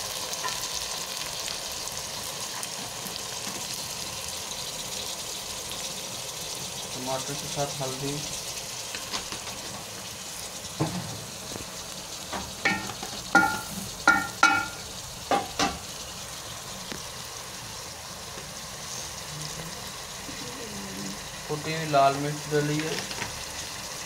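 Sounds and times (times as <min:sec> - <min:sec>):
vegetables sizzling in hot oil: 0:00.0 - 0:24.0.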